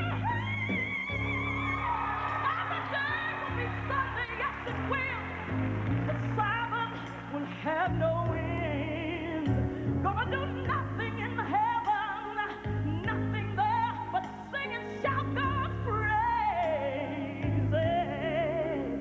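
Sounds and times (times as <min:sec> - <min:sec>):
woman singing gospel: 0:00.0 - 0:19.0
band with sustained bass chords: 0:03.4 - 0:11.8.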